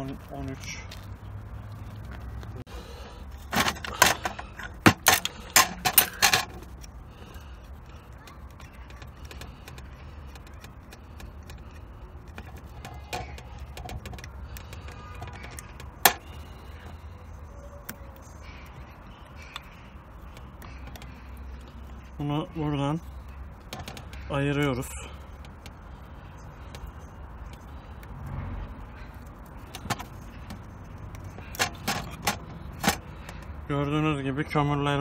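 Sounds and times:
metal tools clinking and clanking: 0:03.5 - 0:06.6.

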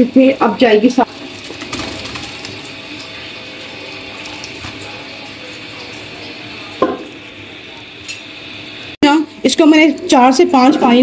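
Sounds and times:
tap water running into tub: 0:00.0 - 0:08.0.

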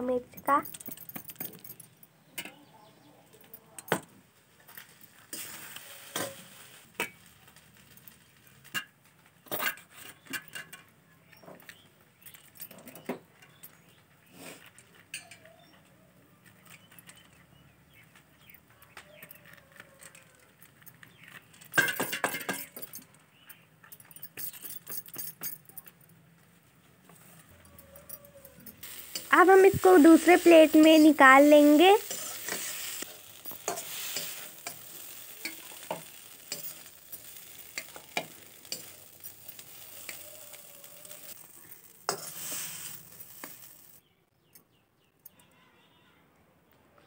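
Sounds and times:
knife clinking and scraping on plate: 0:42.1 - 0:43.7.

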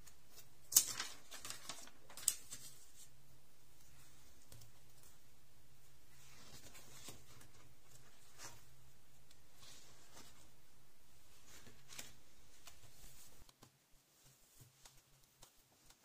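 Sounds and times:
paper pages turning: 0:00.0 - 0:03.2, 0:06.1 - 0:08.7, 0:11.4 - 0:13.5
sharp paper rustle: 0:00.3 - 0:03.1.

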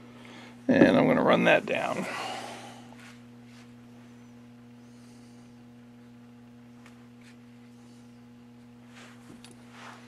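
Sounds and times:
faint electrical mains hum: 0:00.0 - 0:10.0
soft handling sounds: 0:08.6 - 0:10.0.

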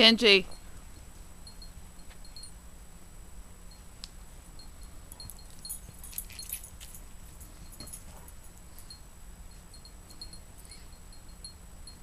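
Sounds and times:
low steady hum: 0:00.0 - 0:12.0
dog collar tags jingling: 0:04.8 - 0:09.0.

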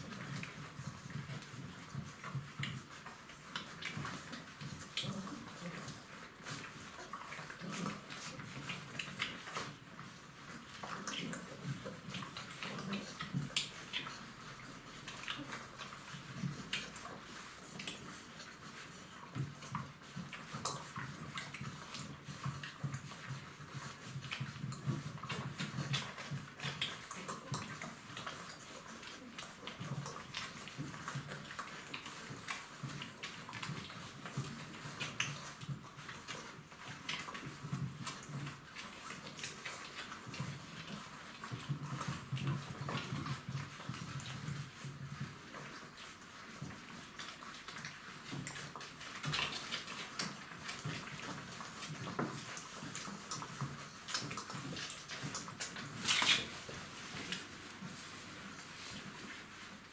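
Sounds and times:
puppies suckling and slurping: 0:00.0 - 0:59.9.

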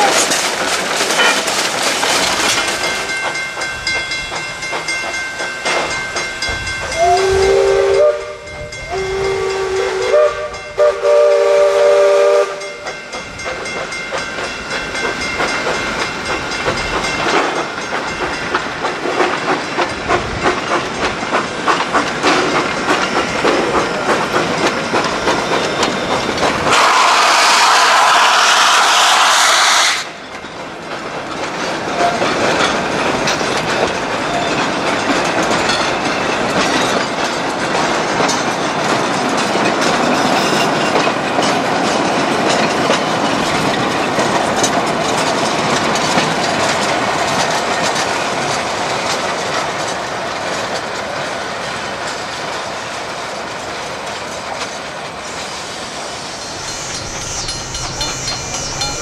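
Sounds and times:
steam locomotive clatter: 0:00.0 - 0:59.0
steam hissing: 0:02.0 - 0:30.3, 0:50.8 - 0:59.0
chime whistle blasts: 0:06.9 - 0:12.8, 0:55.6 - 0:59.0.

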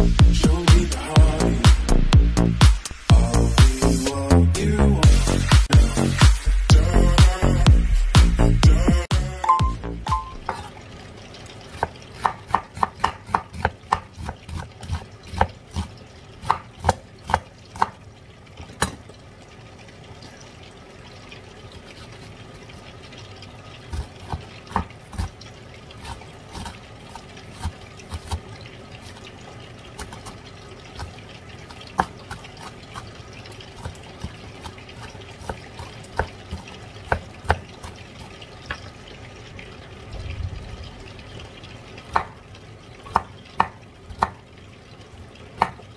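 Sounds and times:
knife tapping on cutting board: 0:42.1 - 0:42.3, 0:45.6 - 0:45.8.

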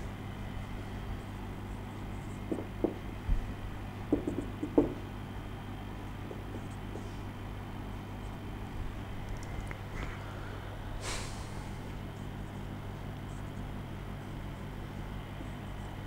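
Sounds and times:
low room hum: 0:00.0 - 0:16.0
marker pen tapping on whiteboard: 0:02.4 - 0:03.0, 0:04.1 - 0:05.0, 0:06.2 - 0:07.0.

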